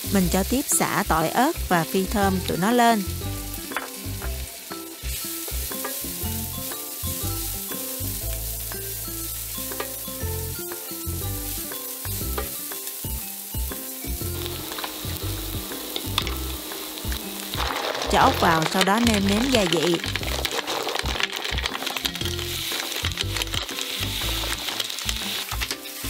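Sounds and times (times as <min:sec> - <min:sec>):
food sizzling in hot oil: 0:00.0 - 0:26.0
wooden spatula stirring: 0:14.2 - 0:26.0.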